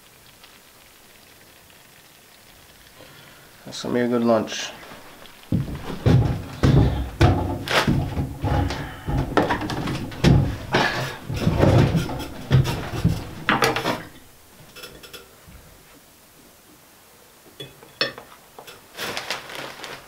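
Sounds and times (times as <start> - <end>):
plastic bag crinkling: 4.6 - 14.2, 18.9 - 20.0.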